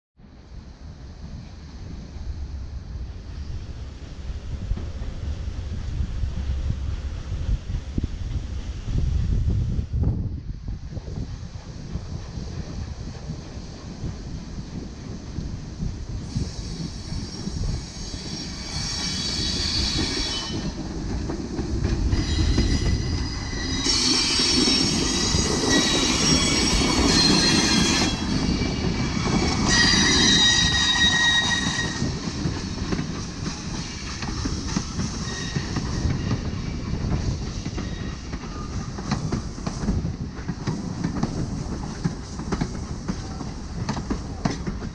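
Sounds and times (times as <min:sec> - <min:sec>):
wheels squealing: 0:16.4 - 0:20.8, 0:22.0 - 0:32.2.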